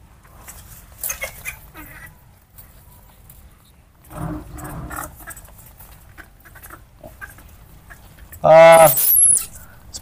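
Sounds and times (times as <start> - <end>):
baby monkey call: 1.0 - 2.2
faint low rumble: 2.7 - 5.4.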